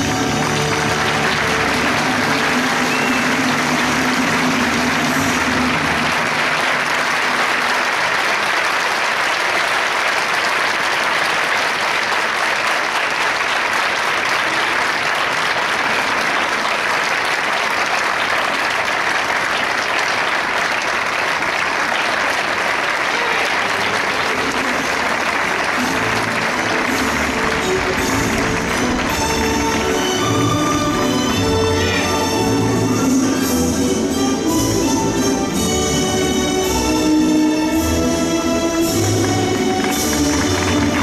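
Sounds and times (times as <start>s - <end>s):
music: 0.0s - 8.2s, 23.1s - 41.0s
crowd applauding: 0.0s - 41.0s.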